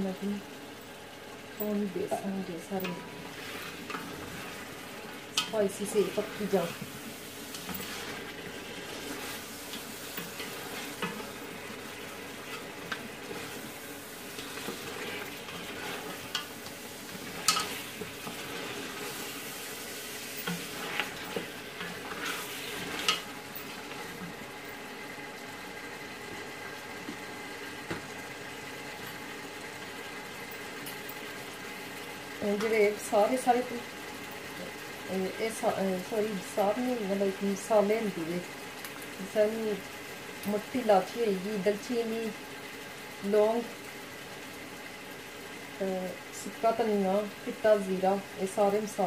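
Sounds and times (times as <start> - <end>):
meat sizzling in a pot: 0.0 - 49.0.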